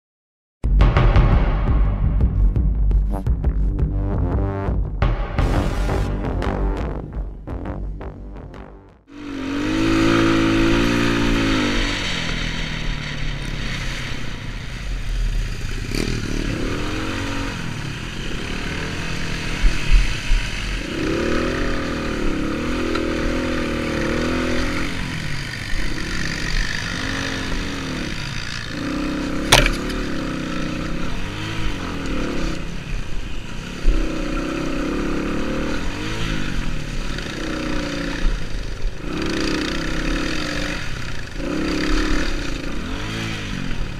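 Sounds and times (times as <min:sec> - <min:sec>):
sharp knock: 0:00.6 - 0:03.4, 0:05.0 - 0:06.6, 0:29.5 - 0:30.1
motorcycle engine revving: 0:03.2 - 0:43.9.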